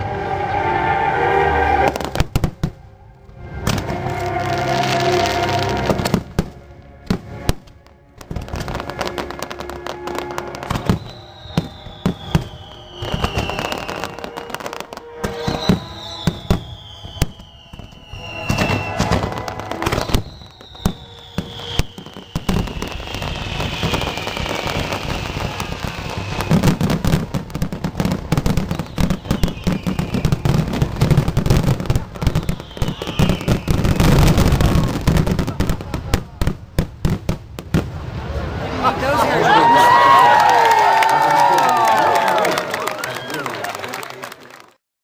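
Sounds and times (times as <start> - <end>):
long falling high tones: 0.0 - 6.2, 8.6 - 31.1
fireworks bursting and crackling: 1.8 - 44.7.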